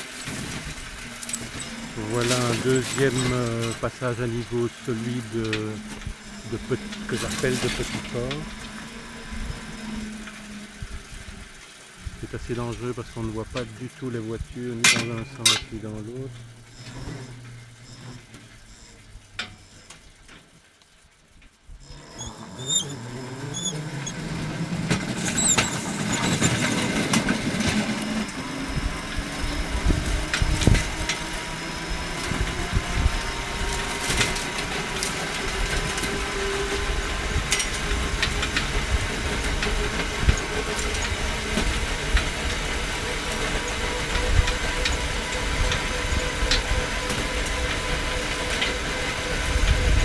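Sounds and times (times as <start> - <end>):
wheels rolling on rails: 0.0 - 50.0
faint rising whine: 0.3 - 50.0
clicks of wheels: 14.8 - 28.4, 33.6 - 50.0.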